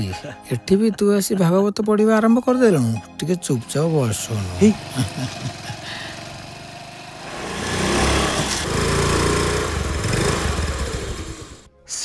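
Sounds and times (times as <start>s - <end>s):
motor scooter engine: 3.8s - 11.7s.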